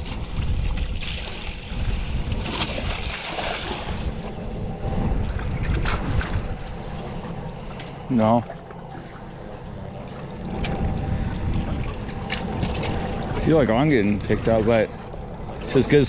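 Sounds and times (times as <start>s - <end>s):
water splashing against hull: 0.0s - 16.0s
wind buffeting microphone: 0.0s - 16.0s
faint steady hum: 3.4s - 16.0s.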